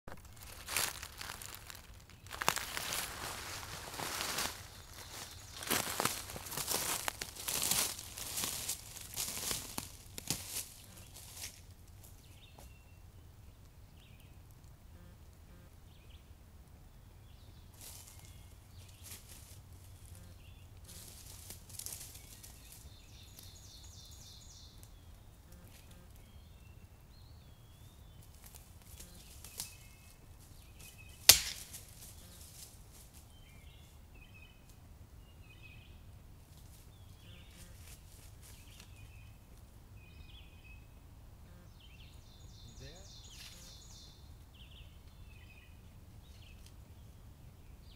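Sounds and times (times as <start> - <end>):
footsteps in dry leaves: 0.1 - 12.7, 17.8 - 24.6, 36.6 - 39.2
faint outdoor background: 0.1 - 47.9
faint bird chirps: 40.1 - 46.7.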